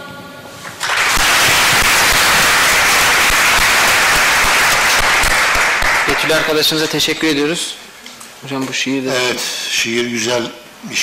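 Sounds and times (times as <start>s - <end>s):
audience clapping: 0.6s - 7.3s.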